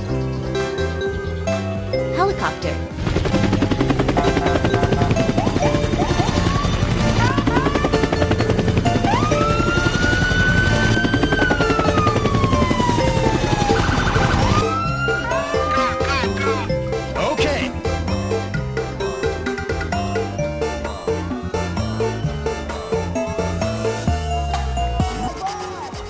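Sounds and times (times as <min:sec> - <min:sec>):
background music: 0:00.0 - 0:26.0
helicopter rotor chopping: 0:02.9 - 0:20.3.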